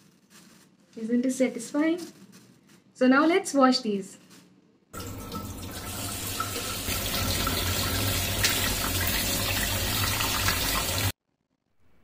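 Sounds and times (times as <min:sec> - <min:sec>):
hand tossing leaves: 0:00.0 - 0:04.6
tap water splashing on leaves: 0:05.0 - 0:11.0.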